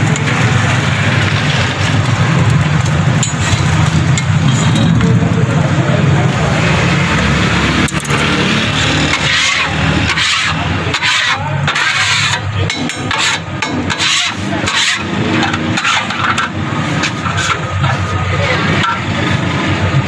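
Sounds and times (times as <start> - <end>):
griddle being scraped: 8.6 - 19.5.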